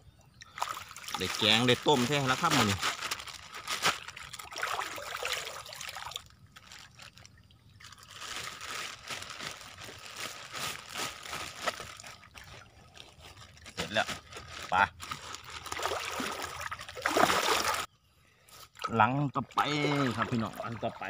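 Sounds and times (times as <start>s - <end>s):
plastic bag crinkling: 1.3s - 4.5s, 6.0s - 16.2s.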